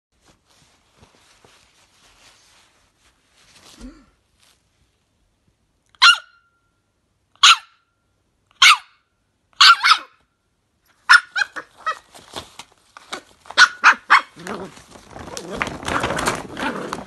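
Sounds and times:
puppy barking: 6.0 - 6.5, 7.4 - 7.8, 8.6 - 9.0, 9.6 - 10.2, 11.0 - 12.0, 13.6 - 14.7.

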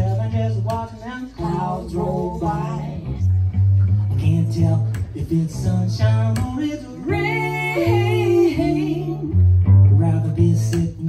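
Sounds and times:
plucked cello bass line: 0.0 - 11.0.

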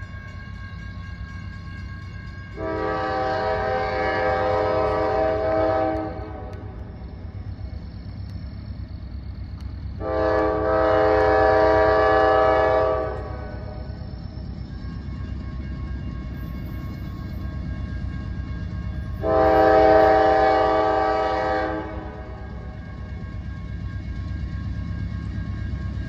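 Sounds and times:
train air horn blasts: 2.6 - 6.8, 10.0 - 13.9, 19.2 - 22.5.

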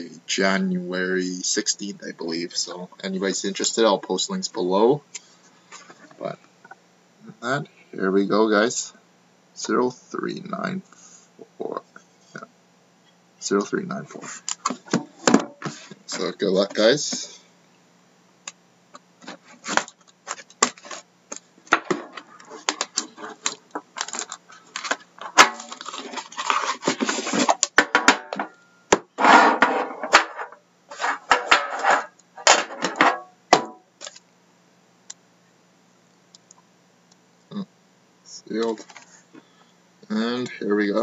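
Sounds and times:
plastic wrap tearing and crinkling: 22.4 - 27.6
clicks and knocks of tin: 22.6 - 26.1, 31.2 - 34.2.

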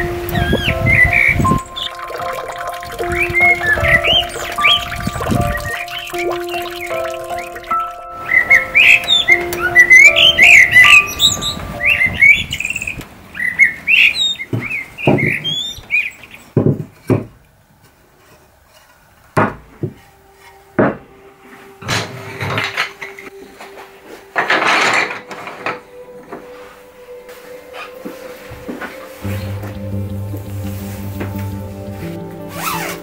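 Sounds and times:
songbird singing: 0.0 - 16.6.

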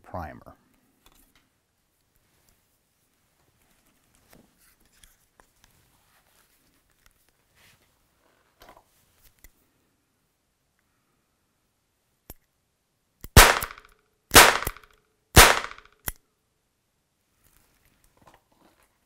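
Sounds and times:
revolver primer pops: 13.3 - 15.9.

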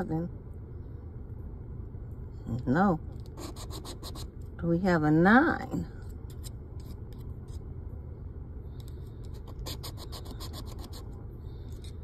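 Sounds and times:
low steady hum: 0.0 - 12.0
scratching lottery ticket: 3.2 - 4.3, 9.2 - 12.0.

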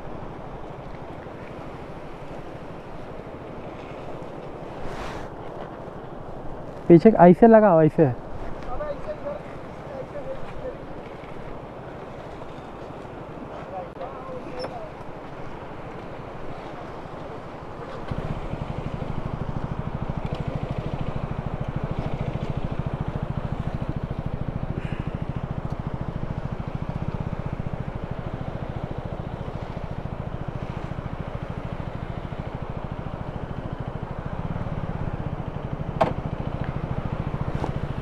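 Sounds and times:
motorcycle engine idling: 14.0 - 38.0.

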